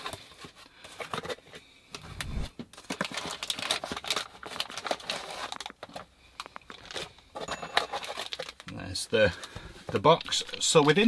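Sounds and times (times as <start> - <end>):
cardboard packaging rustling: 0.1 - 6.0
plastic bag crinkling: 2.9 - 7.1.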